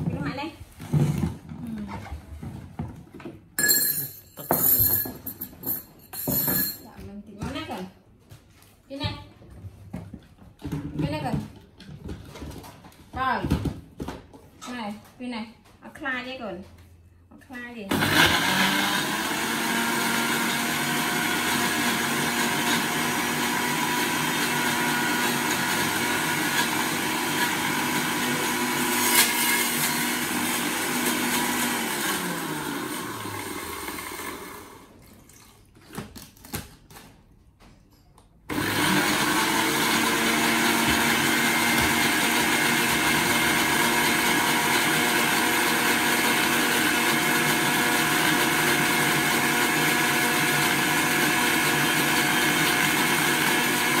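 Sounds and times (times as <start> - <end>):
electric blender running: 17.9 - 35.0, 38.5 - 54.0.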